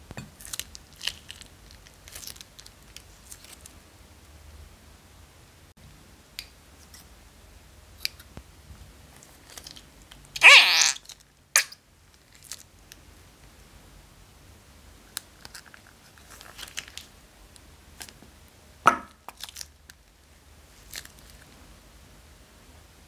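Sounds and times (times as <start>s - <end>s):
plastic bag crinkling: 0.4s - 3.7s, 12.2s - 12.7s.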